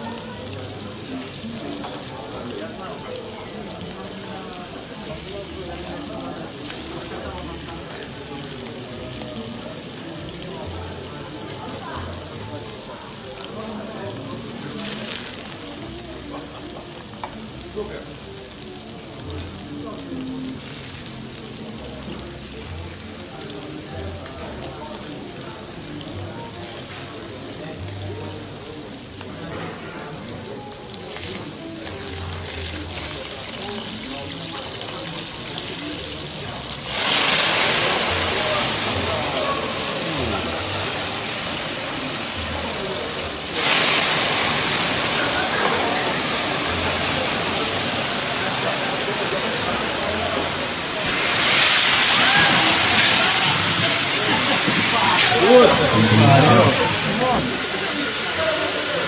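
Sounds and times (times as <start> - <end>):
flame sizzling and crackling: 0.0 - 59.0
flames rushing hiss: 36.8 - 59.0.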